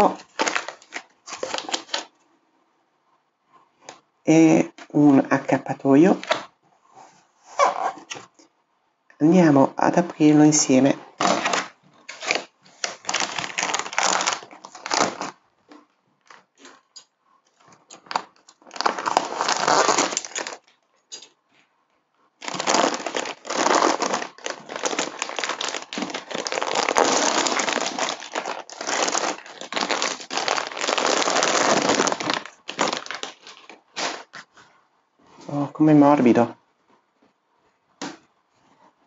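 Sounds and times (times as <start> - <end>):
plastic bag crinkling: 0.0 - 2.1, 11.2 - 15.4, 17.9 - 20.7, 22.4 - 34.5.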